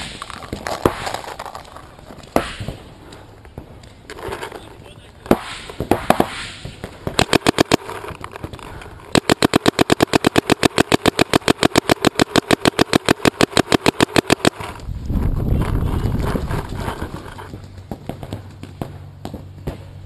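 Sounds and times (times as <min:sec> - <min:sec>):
paintball marker firing: 0:02.2 - 0:02.9, 0:05.3 - 0:14.8.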